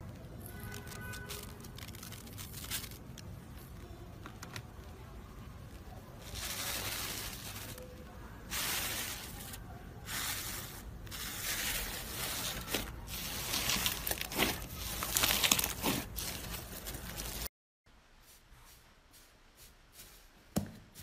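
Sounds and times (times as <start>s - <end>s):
slime crackling and squishing: 0.0s - 17.5s.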